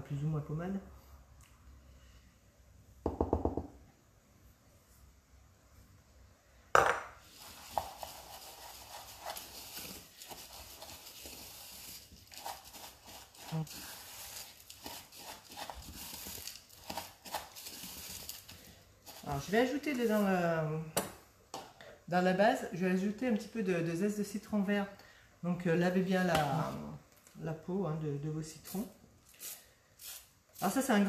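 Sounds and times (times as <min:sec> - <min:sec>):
utensil stirring and scraping in bowl: 0:07.3 - 0:20.4.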